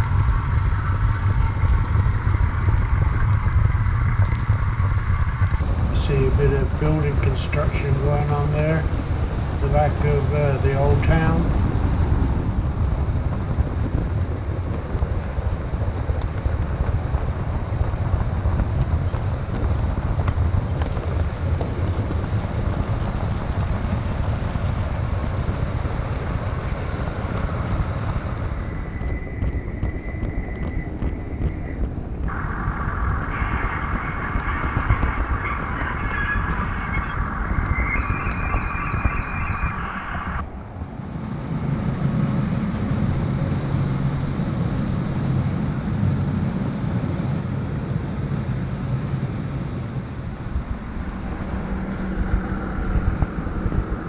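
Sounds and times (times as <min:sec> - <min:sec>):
high-pitched steady tones: 0:29.0 - 0:40.4.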